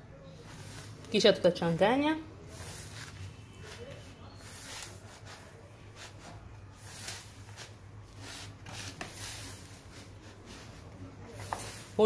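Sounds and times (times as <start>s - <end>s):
hand squishing wet dough: 2.4s - 12.0s.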